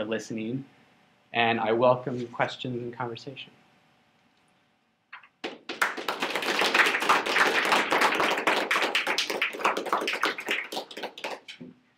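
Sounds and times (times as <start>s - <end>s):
audience applauding: 5.4s - 11.6s.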